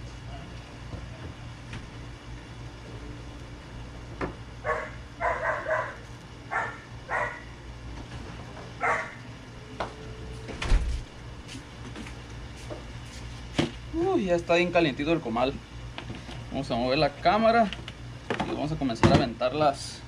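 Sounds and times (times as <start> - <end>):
steady low hum: 0.0 - 20.0
dog barking: 4.6 - 7.5, 8.8 - 9.2.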